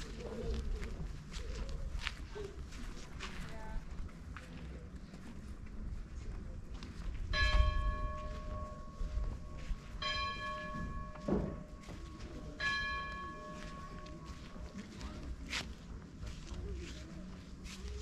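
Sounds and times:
bell ringing: 10.0s - 14.3s.

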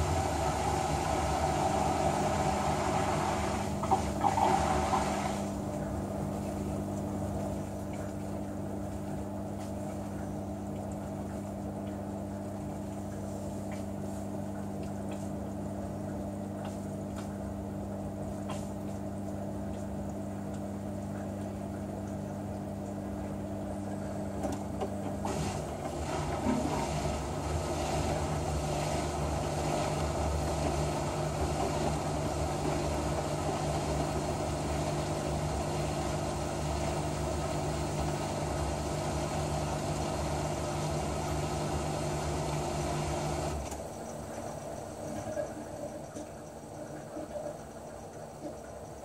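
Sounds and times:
water rushing: 0.0s - 5.7s
drain pump humming: 0.0s - 49.0s.

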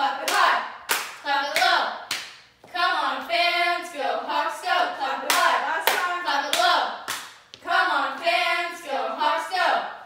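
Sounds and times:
girls chanting a cheer: 0.0s - 2.1s, 2.7s - 10.0s
hand claps: 0.3s - 2.5s, 5.3s - 7.4s.

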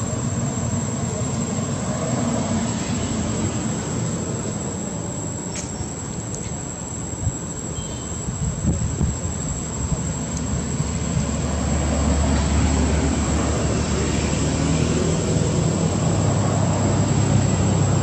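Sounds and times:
low engine rumble: 0.0s - 7.6s.

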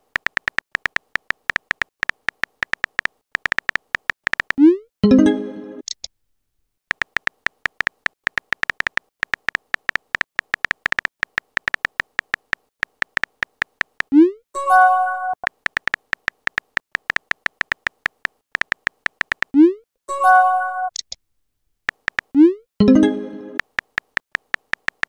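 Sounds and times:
phone keyboard tap clicks: 0.0s - 4.6s, 6.9s - 14.1s, 15.4s - 19.5s, 21.9s - 22.3s, 23.6s - 25.0s.

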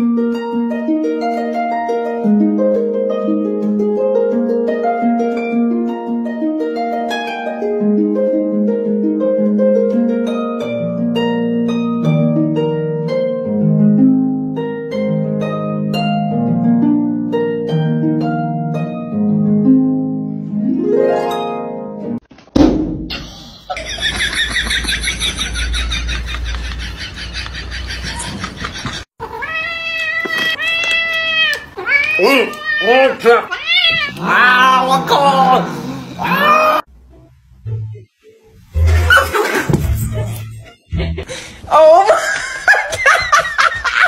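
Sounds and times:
harp music: 0.0s - 22.2s, 37.6s - 41.4s.

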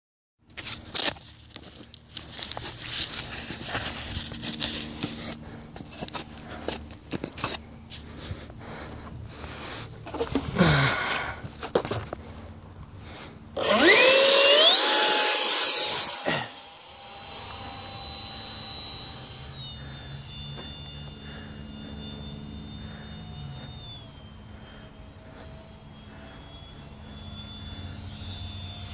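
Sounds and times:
faint steady hum: 0.4s - 28.9s
model jet whine overhead: 0.4s - 28.9s.

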